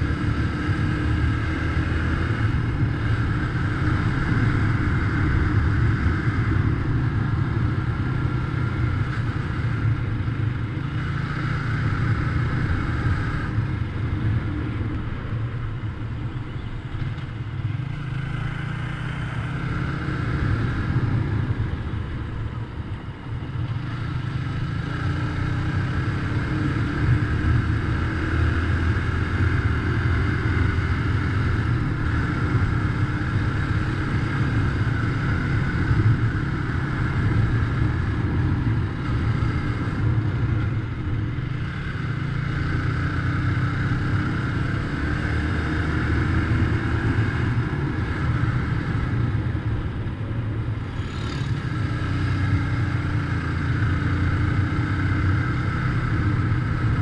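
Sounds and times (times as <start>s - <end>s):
motorcycle engine running: 0.0s - 57.0s
road noise: 0.0s - 57.0s.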